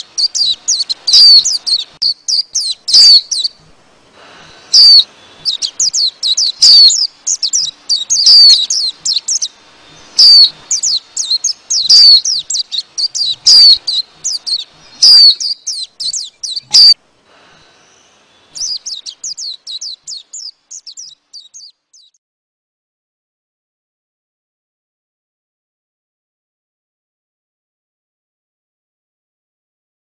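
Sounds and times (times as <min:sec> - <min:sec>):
birds twittering chirps: 0:00.0 - 0:03.6, 0:04.2 - 0:22.2
sweeping bird call: 0:00.0 - 0:22.2.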